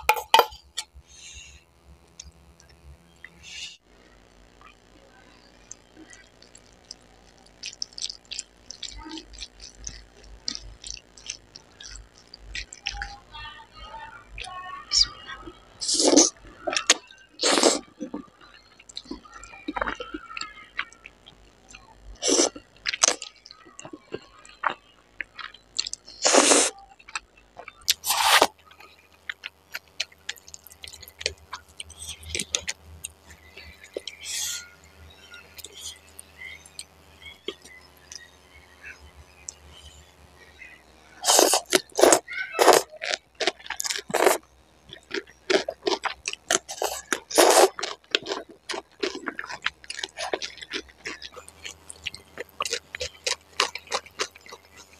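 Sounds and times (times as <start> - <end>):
wet chewing clicks: 5.6 - 13.2, 14.9 - 38.3, 41.2 - 54.9
chopsticks stirring sticky noodles: 14.4 - 21.4, 22.2 - 38.4, 41.2 - 54.9
person slurping noodles: 15.8 - 16.3, 17.4 - 17.8, 22.2 - 22.6, 26.2 - 26.8, 27.9 - 28.6, 41.2 - 42.9, 43.8 - 44.4, 46.0 - 51.2.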